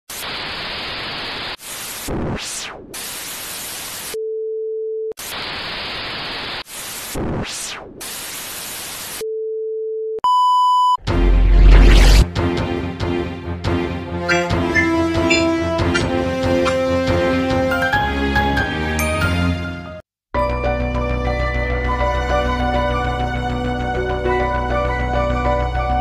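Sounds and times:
static hiss: 0:00.1 - 0:04.2, 0:05.2 - 0:09.2
short high beep: 0:10.2 - 0:11.0.

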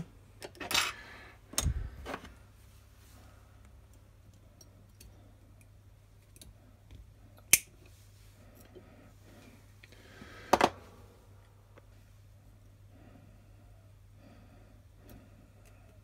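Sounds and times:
pliers clicking and scraping on wire: 0:03.9 - 0:07.8.

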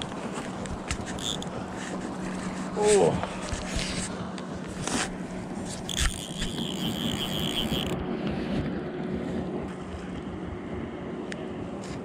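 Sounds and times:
fly reel drag clicking: 0:00.0 - 0:02.7, 0:04.7 - 0:08.0.

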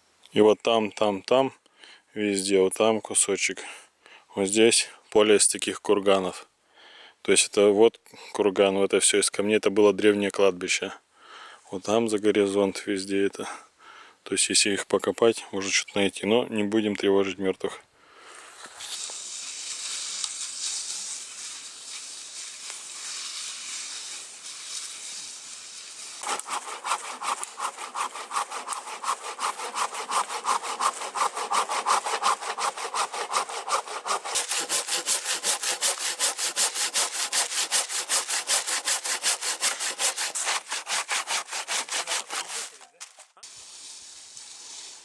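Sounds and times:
hand saw cutting log: 0:18.6 - 0:45.0.

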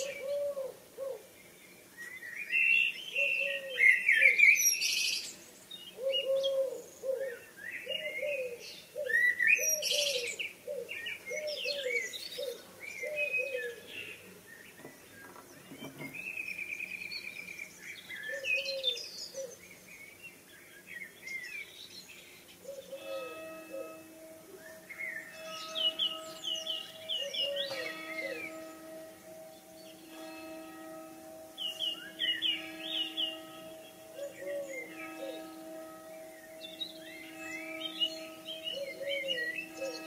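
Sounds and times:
soft cooing bird call: 0:00.0 - 0:01.3, 0:02.0 - 0:05.2, 0:05.9 - 0:16.8, 0:18.2 - 0:19.6, 0:25.9 - 0:28.8, 0:34.1 - 0:35.7, 0:38.6 - 0:40.0
songbirds chirping and whistling: 0:00.0 - 0:40.0
steady held tones: 0:22.8 - 0:40.0.

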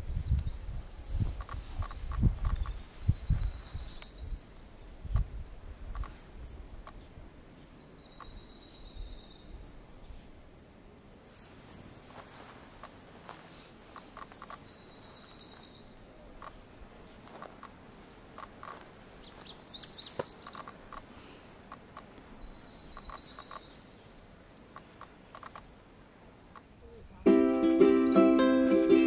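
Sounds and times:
bird singing buzzy trills: 0:00.2 - 0:05.6, 0:06.4 - 0:11.2, 0:14.0 - 0:21.1, 0:21.8 - 0:27.3
ukulele music: 0:27.2 - 0:29.0.

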